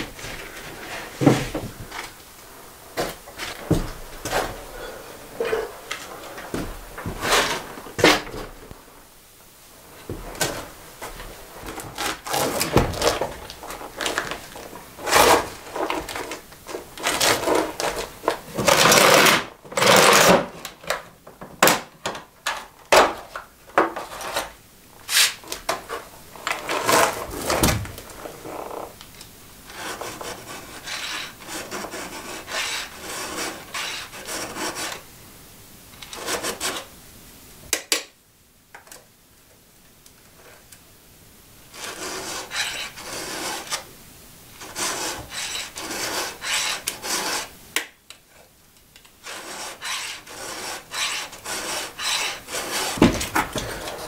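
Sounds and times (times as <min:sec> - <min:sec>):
tools rubbing scraping and clattering: 0:02.9 - 0:08.6, 0:29.7 - 0:35.0, 0:41.8 - 0:43.8, 0:44.6 - 0:47.5, 0:49.2 - 0:54.0
rasping scrape: 0:07.1 - 0:08.3, 0:29.7 - 0:35.0, 0:41.7 - 0:43.8, 0:44.6 - 0:47.5, 0:49.2 - 0:54.0.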